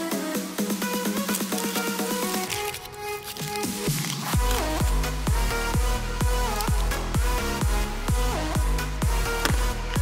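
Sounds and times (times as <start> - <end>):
electronic dance music: 0.0 - 10.0
thumping kick drum: 4.4 - 10.0.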